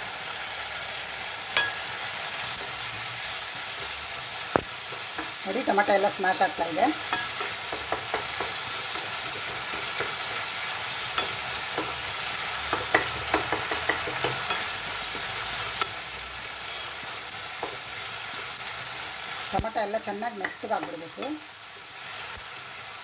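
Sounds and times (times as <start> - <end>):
vegetables sizzling in oil: 0.0 - 23.0
spatula scraping and tapping pan: 3.7 - 6.0, 6.6 - 16.0, 17.5 - 18.9.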